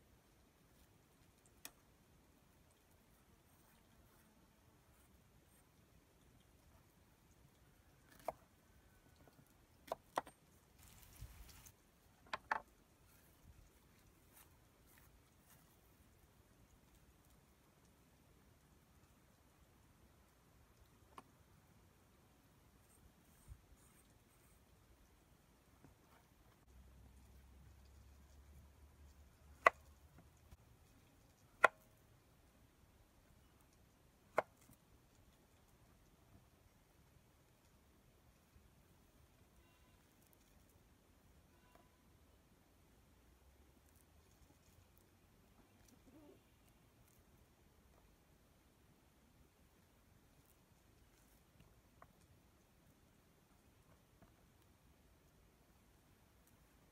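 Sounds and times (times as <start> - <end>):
peel rustling: 10.8 - 11.8.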